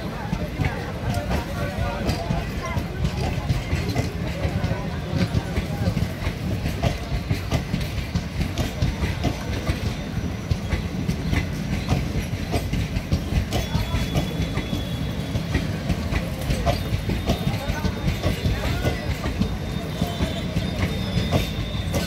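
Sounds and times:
low rumble of rolling coaches: 0.0 - 22.0
train wheels clicking over rail joints: 0.0 - 22.0.

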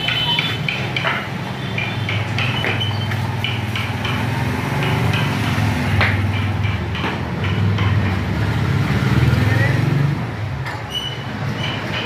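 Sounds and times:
sharp taps and knocks: 0.0 - 12.0.

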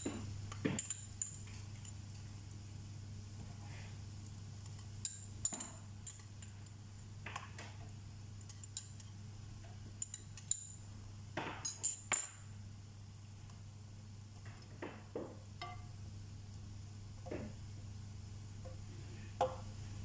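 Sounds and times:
spoon clinking on glass bowl: 0.5 - 2.0, 4.7 - 6.5, 10.0 - 10.8, 11.6 - 12.4.

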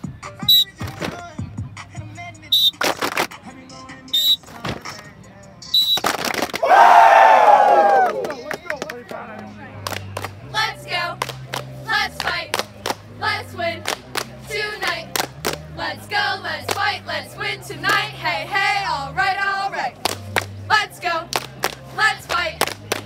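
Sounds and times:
sharp handclaps: 7.7 - 9.2, 9.8 - 10.4, 11.2 - 13.0, 13.8 - 14.4, 15.2 - 15.6, 20.0 - 20.5, 21.3 - 23.0
choir-like singing: 10.4 - 11.2, 11.8 - 23.0.

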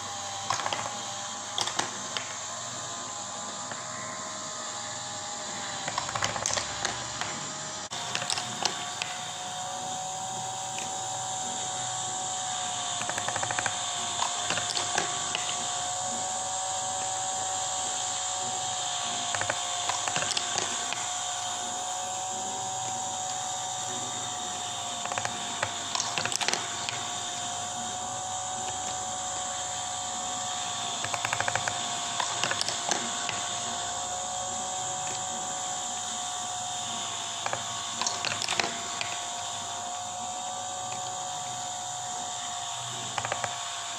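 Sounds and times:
wind-up spring motor whirring: 5.0 - 43.7.

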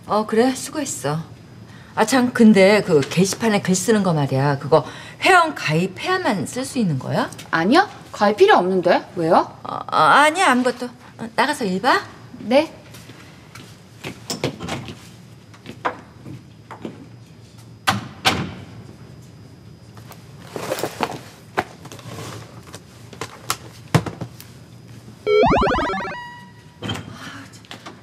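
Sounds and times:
rising sweep sound effect: 25.3 - 26.6.

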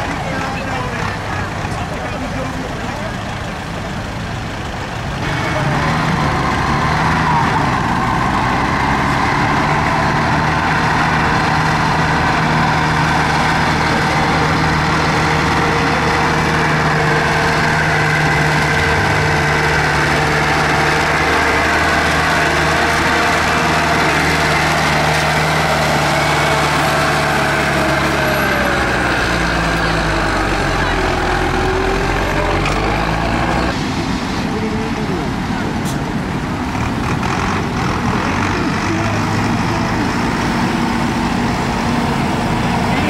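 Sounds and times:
diesel engine running: 0.0 - 43.0
engine whine: 0.0 - 43.0.

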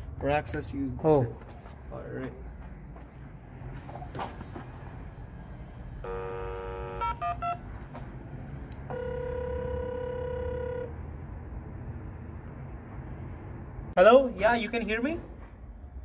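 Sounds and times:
intercom steady tone: 6.0 - 7.7, 8.9 - 11.0
dialing beeps: 6.1 - 7.6
ringing tone: 8.9 - 10.9.

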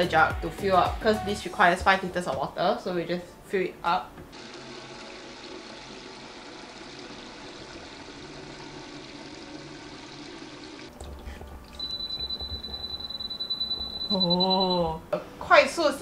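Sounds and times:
water pouring into plastic jug: 4.4 - 11.8
dishwasher high beep: 11.3 - 15.0.

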